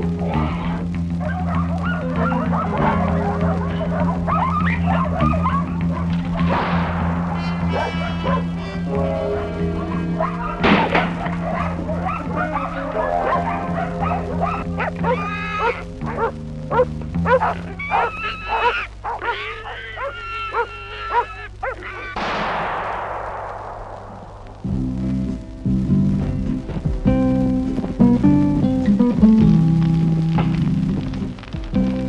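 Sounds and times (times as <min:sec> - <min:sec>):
dogs barking and yelping: 0:01.1 - 0:06.5, 0:07.5 - 0:22.2
noisy crash: 0:06.1 - 0:09.1, 0:10.0 - 0:12.3, 0:22.2 - 0:27.1.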